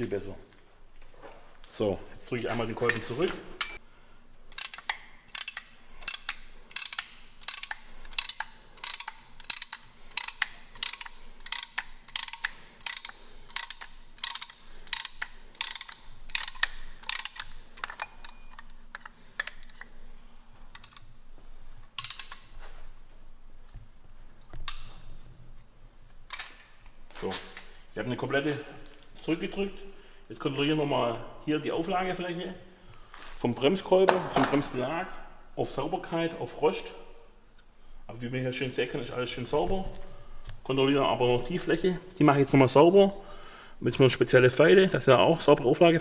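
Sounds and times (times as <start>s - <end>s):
ratchet clicking: 4.5s - 19.9s, 21.9s - 22.6s.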